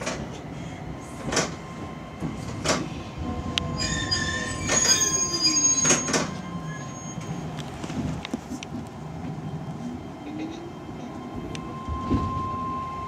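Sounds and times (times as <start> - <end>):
train clanks: 0.0 - 0.5, 1.2 - 13.0
train brakes squealing: 3.7 - 7.5.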